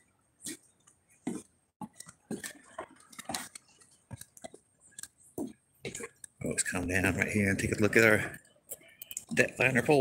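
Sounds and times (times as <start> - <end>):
footsteps on wooden planks: 0.4 - 4.7, 5.3 - 6.2.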